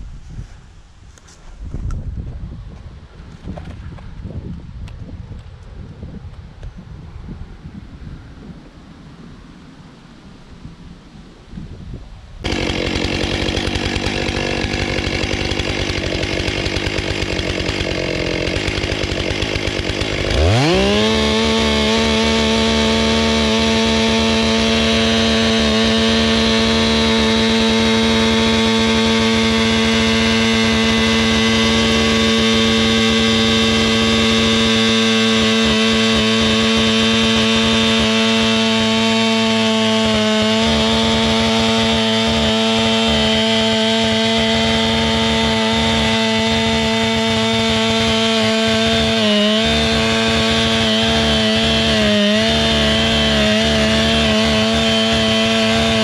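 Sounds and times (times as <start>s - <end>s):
chainsaw cutting wood: 12.4s - 56.0s.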